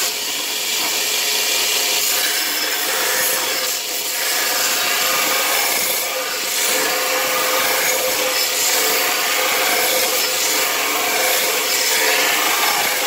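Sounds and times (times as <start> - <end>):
belt grinder grinding steel: 0.0 - 13.0
grinder motor hum: 0.0 - 13.0.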